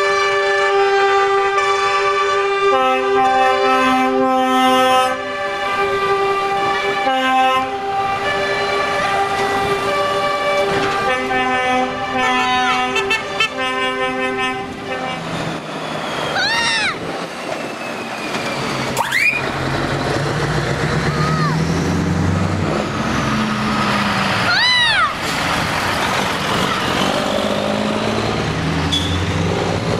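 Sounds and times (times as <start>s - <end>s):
truck air horn chords: 0.0s - 15.4s, 28.8s - 29.5s
diesel engine running: 7.9s - 29.9s.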